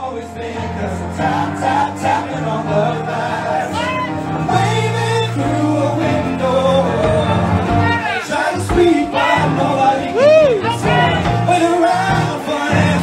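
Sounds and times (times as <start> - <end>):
group singing along: 0.0 - 13.0
musical accompaniment: 0.0 - 13.0
man singing into microphone: 4.5 - 13.0.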